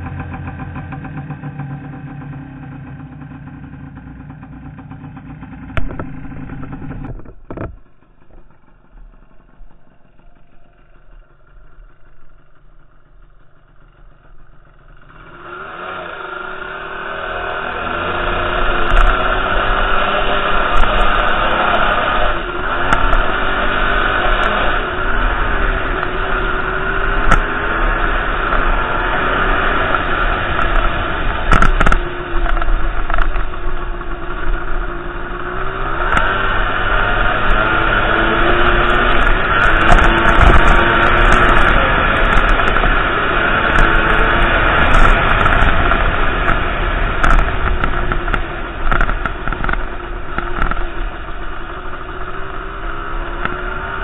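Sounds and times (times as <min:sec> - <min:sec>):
dirt bike engine revving: 0:00.0 - 0:11.0, 0:14.7 - 0:54.0.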